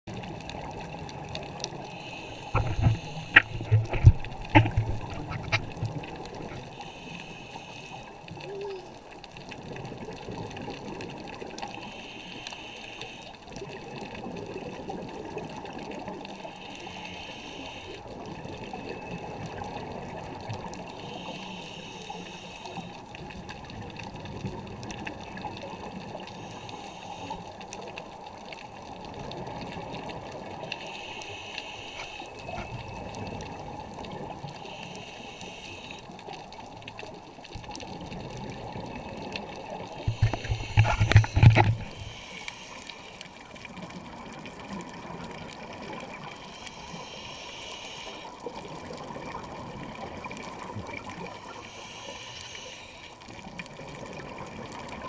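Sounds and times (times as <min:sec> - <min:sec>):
steady underwater hiss: 0:00.1 - 0:55.0
scuba regulator breathing: 0:01.7 - 0:09.0, 0:11.6 - 0:13.5, 0:16.4 - 0:20.0, 0:20.7 - 0:23.3, 0:26.1 - 0:28.0, 0:30.1 - 0:33.6, 0:34.4 - 0:36.5, 0:39.5 - 0:43.4, 0:45.6 - 0:48.5, 0:51.0 - 0:53.5
exhaled bubbles underwater: 0:08.1 - 0:11.8, 0:13.5 - 0:17.0, 0:32.1 - 0:34.6, 0:36.0 - 0:47.4, 0:48.0 - 0:51.8, 0:53.1 - 0:55.0.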